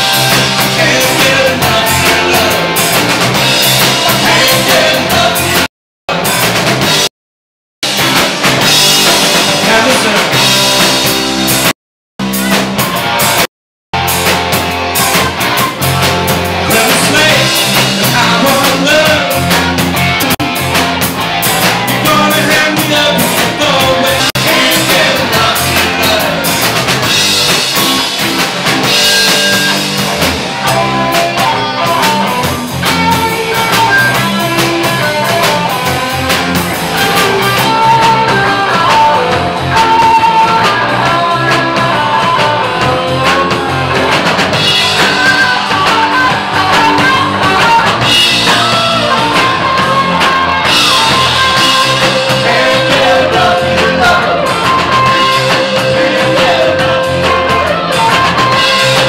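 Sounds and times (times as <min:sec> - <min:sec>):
drum kit: 0:00.0 - 0:07.1, 0:07.8 - 0:59.0
electric guitar: 0:00.0 - 0:07.1, 0:07.8 - 0:59.0
man singing into microphone: 0:00.5 - 0:02.7, 0:04.1 - 0:05.7, 0:16.6 - 0:19.5, 0:22.0 - 0:26.6, 0:44.8 - 0:59.0.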